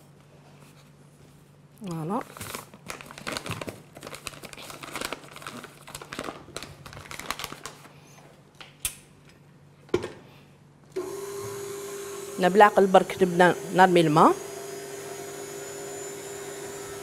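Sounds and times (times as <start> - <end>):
plastic bag crinkling: 1.8 - 8.0.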